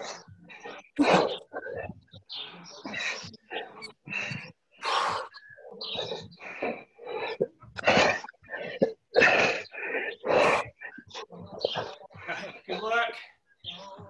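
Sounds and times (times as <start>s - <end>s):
people grunting with exertion: 0.0s - 13.2s.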